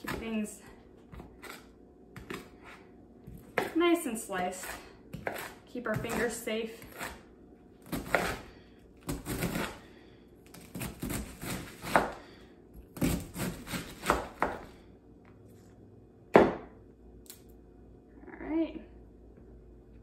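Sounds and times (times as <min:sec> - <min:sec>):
knife slicing cabbage: 0:01.1 - 0:14.8.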